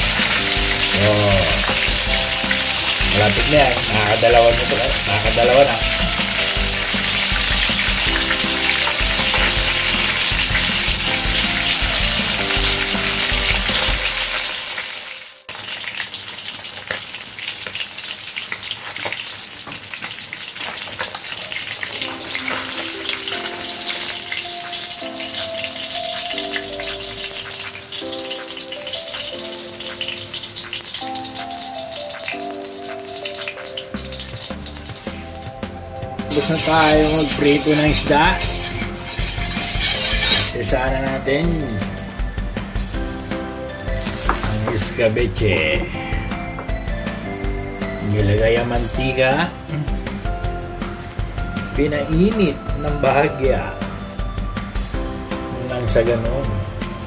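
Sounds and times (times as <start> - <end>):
fish deep-frying in oil: 0.0 - 57.0.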